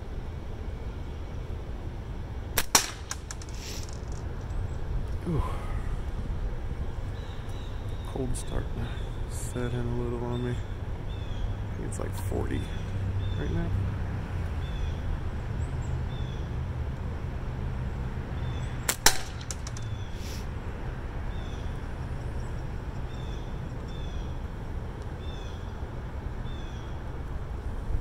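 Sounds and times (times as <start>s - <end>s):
slingshot crack: 2.6s - 4.3s, 18.8s - 20.0s.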